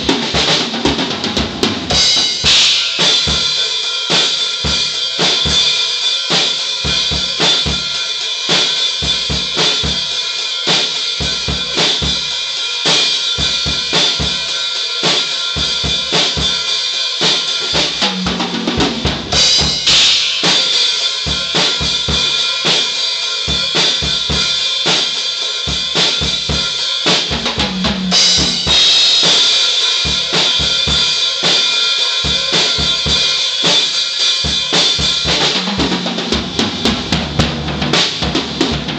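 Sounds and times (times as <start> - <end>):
drum kit steady beat: 0.0 - 38.9
cymbal crash: 1.9 - 18.0, 19.0 - 35.5
tom fill: 12.8 - 38.9.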